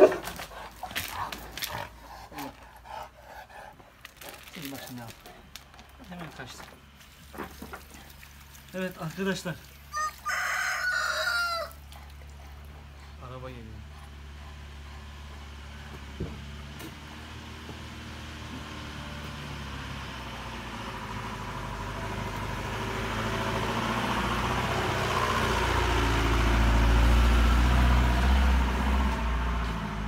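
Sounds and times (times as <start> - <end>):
car engine approaching: 11.4 - 30.0.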